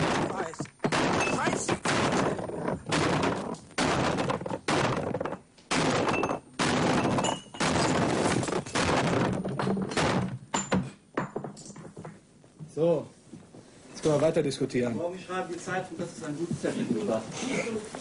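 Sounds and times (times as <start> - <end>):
axe smashing wood: 0.0 - 10.4
glasses and bottles clattering: 0.0 - 12.2.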